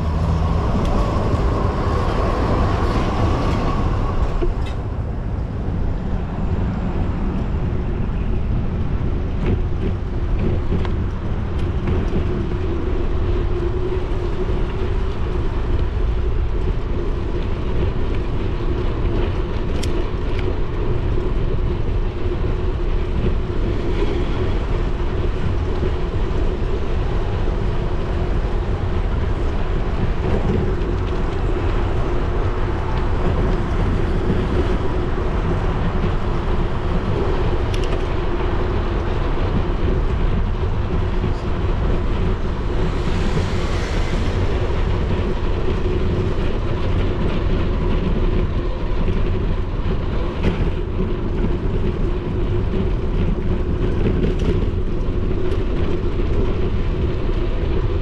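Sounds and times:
bicycle tyres rolling: 0:00.0 - 0:58.0
wind rumble on microphone: 0:00.0 - 0:58.0
wind rushing: 0:00.0 - 0:58.0
low hum: 0:39.9 - 0:48.2.

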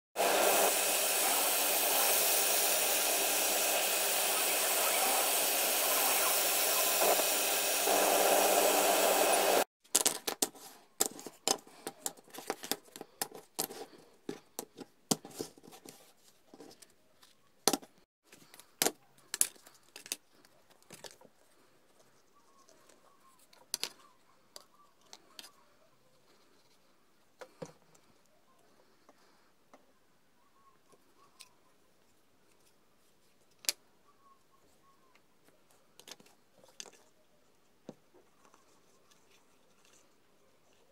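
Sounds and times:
laser cutter whirring: 0:00.2 - 0:09.6.

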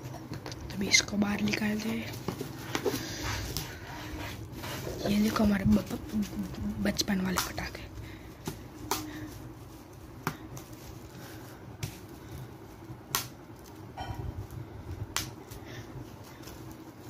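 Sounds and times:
bubble wrap popping: 0:08.4 - 0:15.6.

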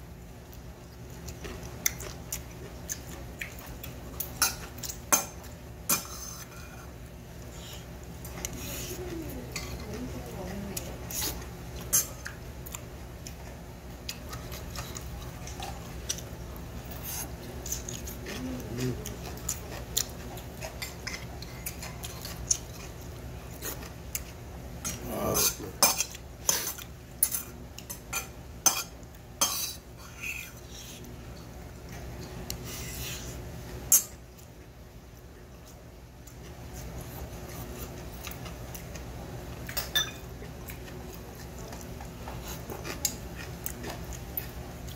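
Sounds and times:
chewing: 0:00.4 - 0:44.9
spoon clinking in metal bowl: 0:39.8 - 0:40.2.

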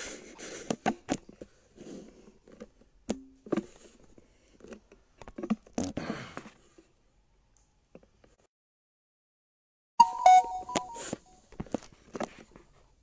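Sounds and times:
short low tone: 0:10.0 - 0:11.2.

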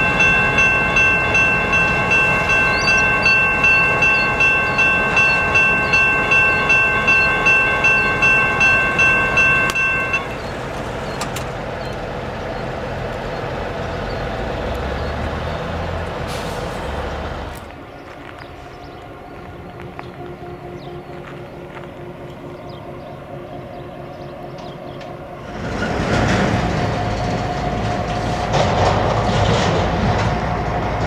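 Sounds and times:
crossing bell ringing: 0:00.0 - 0:11.2
freight train rumble: 0:00.0 - 0:31.0.

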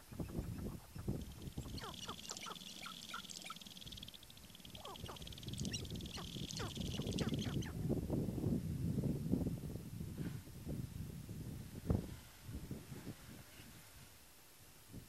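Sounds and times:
grouse cackling calls: 0:00.0 - 0:07.8
high buzzing rattle: 0:01.1 - 0:07.6.

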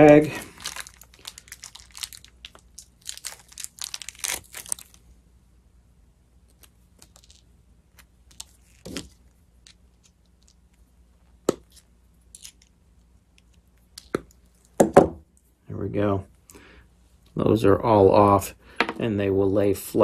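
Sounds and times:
plastic bag crinkling: 0:00.0 - 0:05.0, 0:06.5 - 0:10.6.

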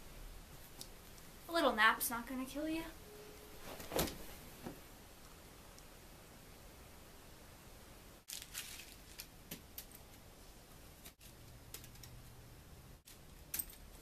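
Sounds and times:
faint rustling and crackling: 0:08.3 - 0:10.2.

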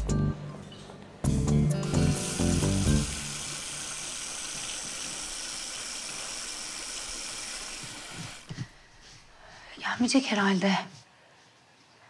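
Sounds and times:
music playing: 0:00.0 - 0:03.4
tap water running into basin: 0:01.8 - 0:08.8.

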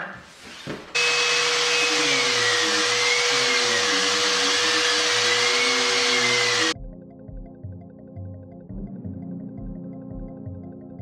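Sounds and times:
orbit sander whining on wood: 0:00.9 - 0:06.8.

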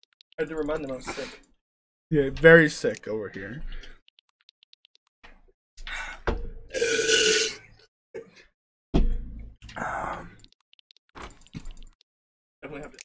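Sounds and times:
person burping: 0:06.7 - 0:07.6.

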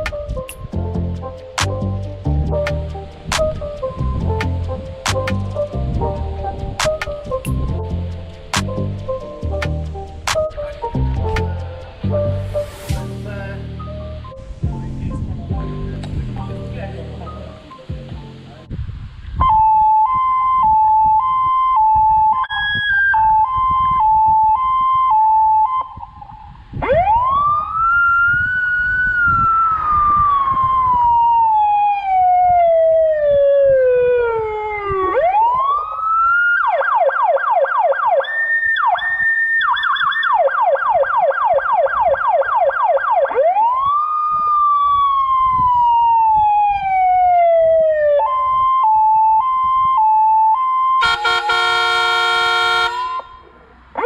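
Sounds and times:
fire engine siren cycling tones: 0:19.4 - 0:54.0.

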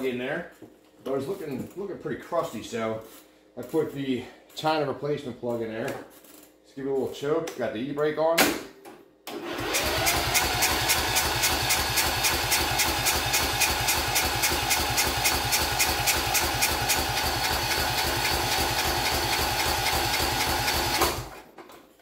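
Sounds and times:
engine cranking with starter whine: 0:09.3 - 0:21.4.

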